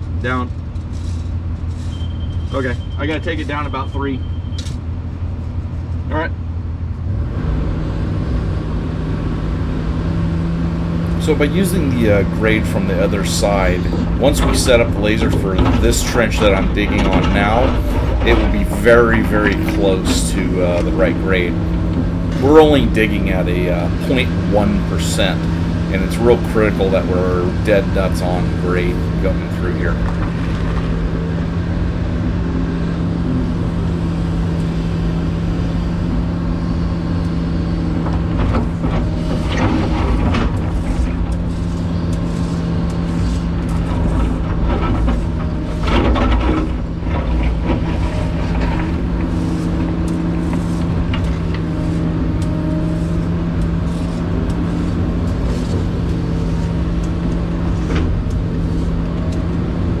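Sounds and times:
diesel engine running: 0.0s - 60.0s.

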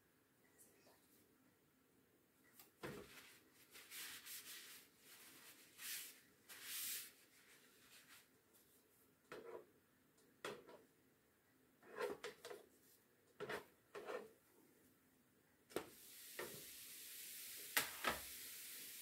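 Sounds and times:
paper towel rustling: 2.8s - 8.8s.

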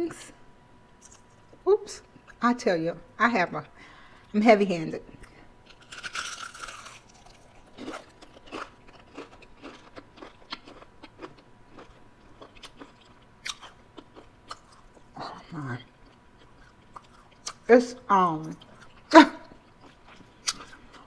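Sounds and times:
chewing with small crunches: 5.1s - 17.7s, 18.4s - 21.0s
biting crunch: 5.7s - 15.1s, 19.8s - 21.0s.

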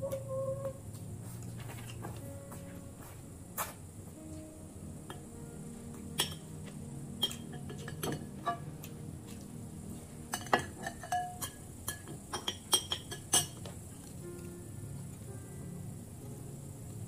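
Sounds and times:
metal spoon clinking on glass bowl: 6.2s - 6.5s, 7.2s - 8.6s, 10.3s - 13.6s.

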